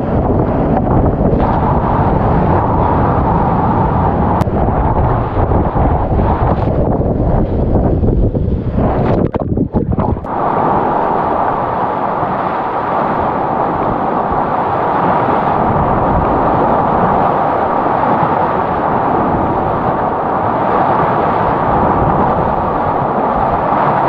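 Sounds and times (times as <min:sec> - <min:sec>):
whitewater rapids roaring: 0:10.2 - 0:24.0.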